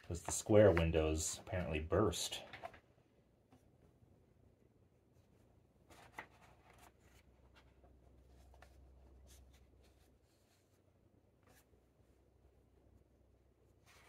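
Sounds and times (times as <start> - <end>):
paper page rustling: 5.9 - 10.8.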